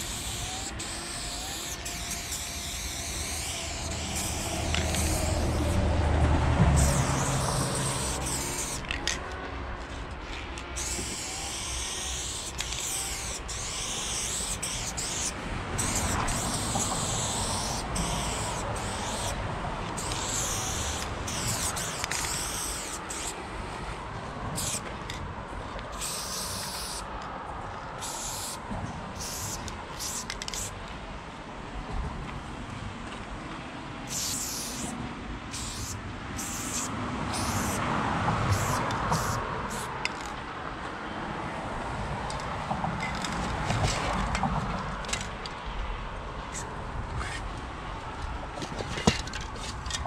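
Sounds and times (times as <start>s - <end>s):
spray paint can hissing: 0.0s - 9.2s, 10.6s - 23.5s, 24.6s - 25.2s, 25.9s - 27.1s, 28.0s - 30.8s, 34.1s - 37.8s, 38.4s - 40.3s, 46.6s - 47.4s.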